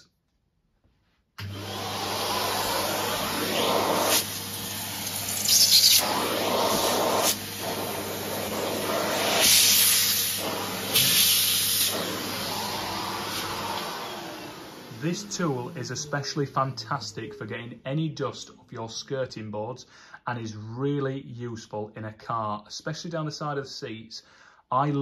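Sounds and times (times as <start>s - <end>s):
vacuum cleaner motor hum: 1.4s - 17.2s
vacuum nozzle air rush: 1.4s - 17.3s.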